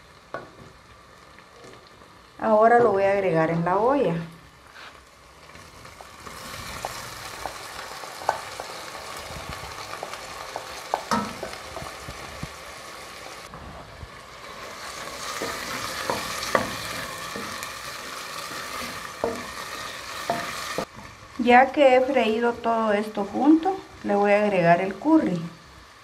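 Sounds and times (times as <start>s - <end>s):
food sizzling in oil: 0.0s - 26.0s
utensil scraping and knocking pot: 15.2s - 20.9s.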